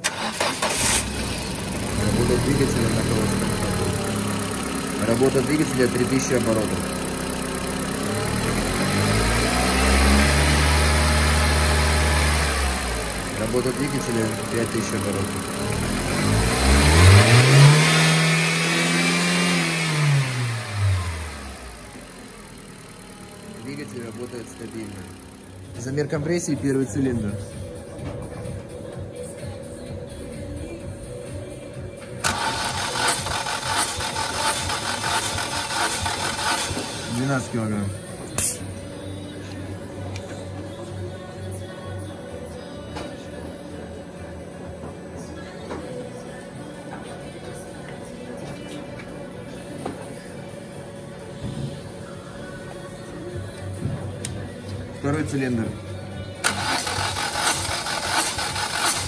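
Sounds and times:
car engine at raised revs: 0:00.0 - 0:26.1, 0:32.2 - 0:38.6, 0:56.4 - 0:59.0.

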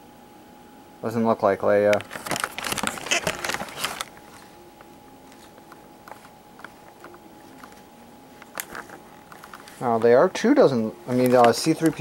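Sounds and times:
plastic packaging rustling: 0:01.9 - 0:04.6, 0:05.2 - 0:12.0.

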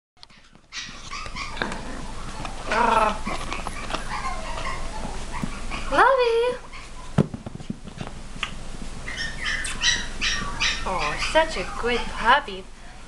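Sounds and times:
puppies whining and yipping: 0:00.2 - 0:07.2, 0:09.0 - 0:12.3
puppy yelp: 0:00.2 - 0:07.2, 0:09.1 - 0:12.3.

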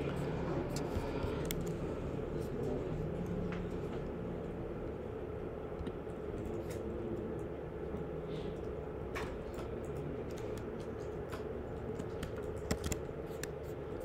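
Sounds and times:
keyboard keystrokes: 0:09.2 - 0:13.6.

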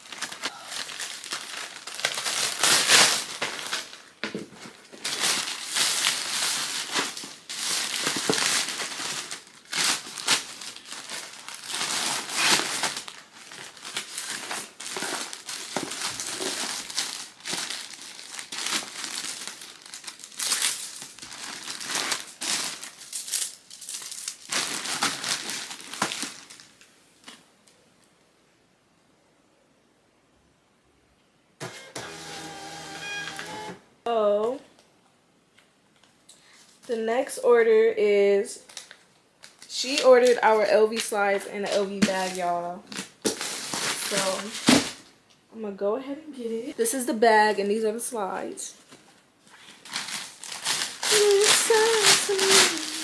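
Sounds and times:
plastic packaging crinkling: 0:00.0 - 0:27.4, 0:38.7 - 0:45.1, 0:48.8 - 0:53.0.

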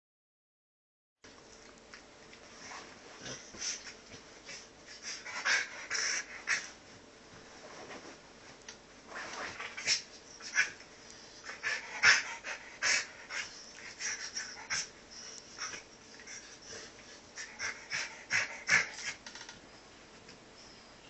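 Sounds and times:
dog panting and snuffling: 0:02.4 - 0:07.0, 0:09.1 - 0:19.2.

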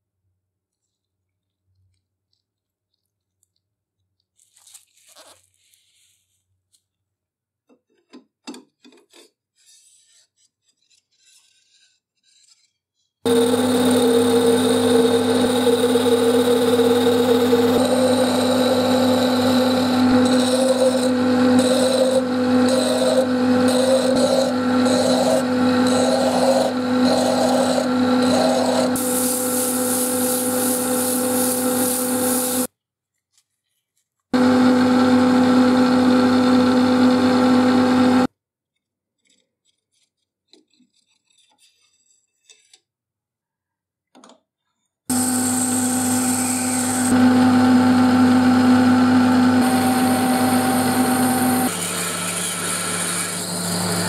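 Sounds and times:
cutting tool scraping wood: 0:09.0 - 0:32.7, 0:39.1 - 0:43.0, 0:49.6 - 0:54.0
lathe motor hum: 0:13.3 - 0:32.7, 0:34.4 - 0:38.3, 0:45.1 - 0:54.0
sandpaper hissing on spinning wood: 0:13.3 - 0:32.7, 0:45.1 - 0:47.2, 0:49.6 - 0:54.0.

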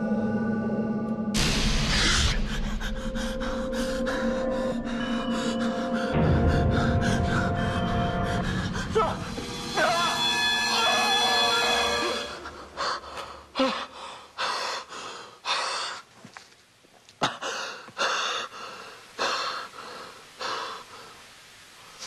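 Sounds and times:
man panting: 0:17.3 - 0:20.8.

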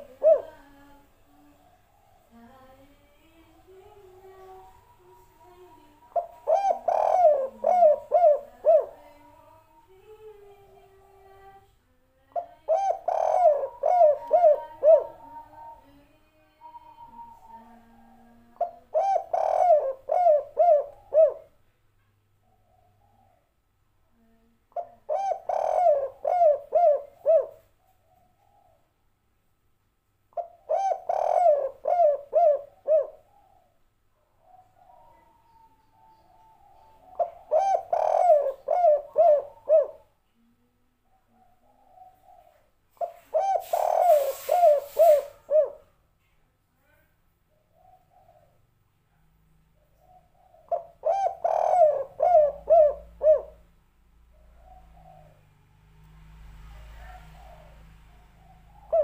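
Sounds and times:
dove cooing: 0:00.0 - 0:02.8, 0:03.4 - 0:11.5, 0:12.4 - 0:16.0, 0:16.6 - 0:21.6, 0:24.2 - 0:28.9, 0:30.4 - 0:33.8, 0:34.4 - 0:40.2, 0:41.0 - 0:45.9, 0:47.5 - 0:48.7, 0:49.8 - 0:53.7, 0:54.3 - 0:55.6, 0:56.4 - 0:59.0.

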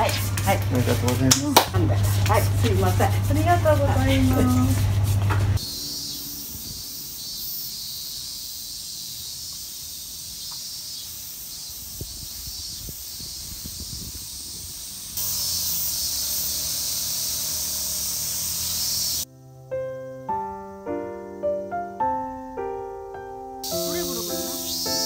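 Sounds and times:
cicadas calling: 0:05.6 - 0:19.4, 0:23.6 - 0:25.0.

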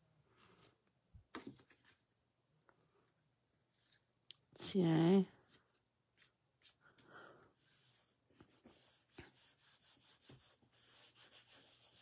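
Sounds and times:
hands rubbing paper: 0:07.6 - 0:12.0.

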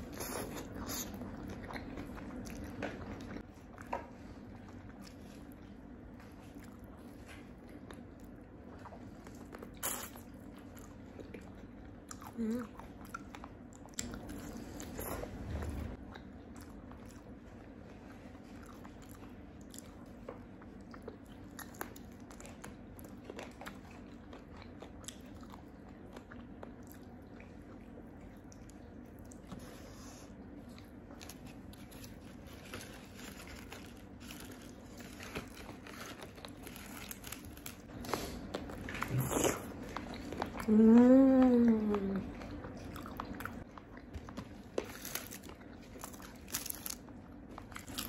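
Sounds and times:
person chewing: 0:00.0 - 0:48.0.

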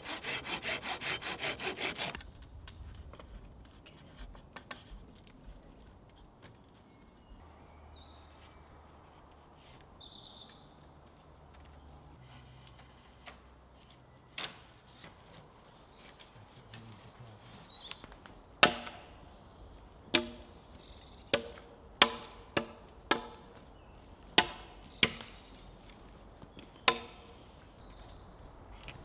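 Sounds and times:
axe chopping into log: 0:18.6 - 0:19.1, 0:20.2 - 0:20.5, 0:21.4 - 0:23.4, 0:24.4 - 0:25.4, 0:26.8 - 0:27.3.

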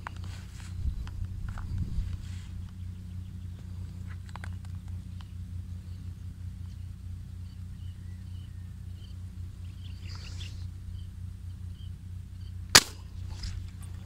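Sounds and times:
low background hum: 0:00.0 - 0:14.0
sharp gunshot: 0:12.7 - 0:13.5.

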